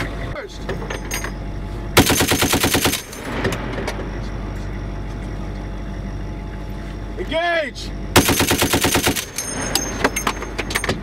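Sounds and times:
vehicle rumble: 0:00.0 - 0:11.0
heavy machine gun burst: 0:02.0 - 0:03.4, 0:08.2 - 0:09.7.

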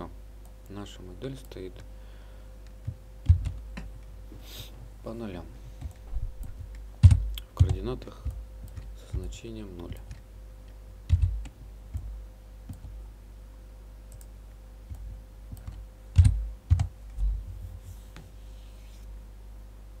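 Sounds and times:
low steady hum: 0:00.0 - 0:20.0
keyboard keystrokes: 0:05.8 - 0:10.2, 0:11.1 - 0:12.1, 0:14.9 - 0:16.9
computer mouse clicks: 0:12.7 - 0:13.0, 0:14.1 - 0:14.3.

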